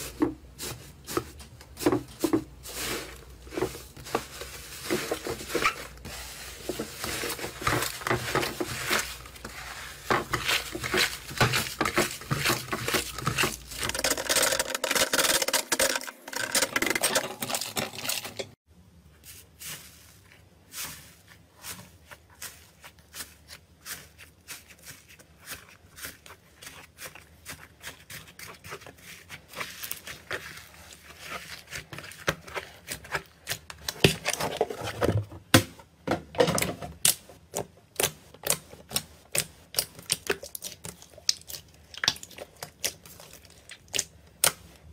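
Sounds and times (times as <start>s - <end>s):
slime squeezed wet crackling: 38.9s - 44.6s.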